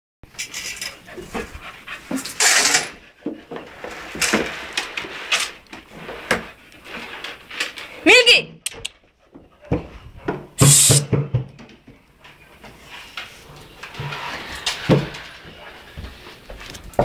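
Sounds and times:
puppy panting: 1.0 - 2.4.

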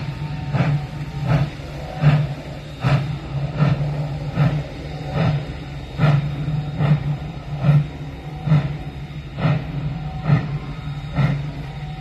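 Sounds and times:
steady low hum: 0.0 - 12.0
steam locomotive exhaust chuffing: 0.0 - 12.0.

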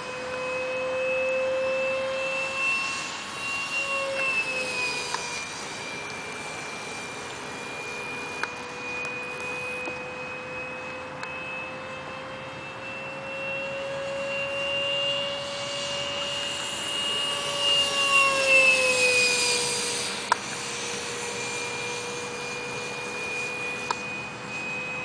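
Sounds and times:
model jet ducted fan whining: 0.0 - 25.0.

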